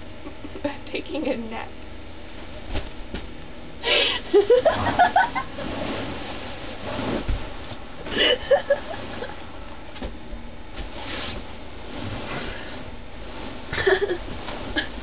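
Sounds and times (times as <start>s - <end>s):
girl giggling: 8.1s - 9.3s, 13.8s - 14.2s.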